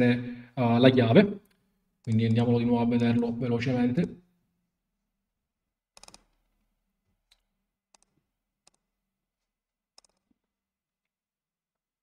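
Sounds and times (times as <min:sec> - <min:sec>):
computer mouse clicking: 0:06.0 - 0:06.5, 0:07.3 - 0:08.9, 0:10.0 - 0:10.4.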